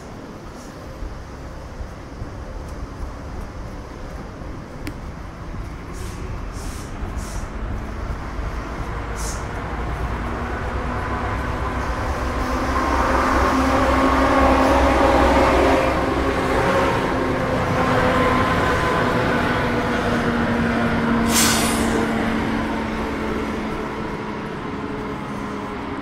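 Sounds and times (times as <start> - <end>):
short sharp hiss: 6.0 - 7.5, 21.3 - 22.0.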